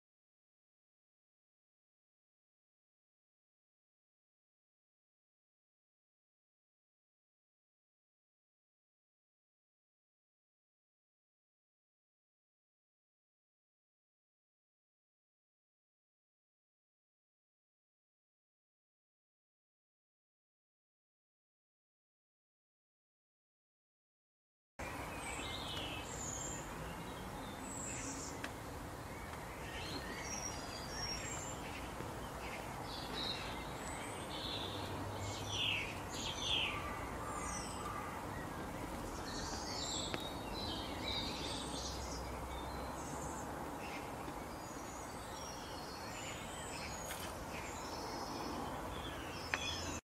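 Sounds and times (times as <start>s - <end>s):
outdoor background hiss: 24.8s - 50.0s
small birds chirping: 24.8s - 50.0s.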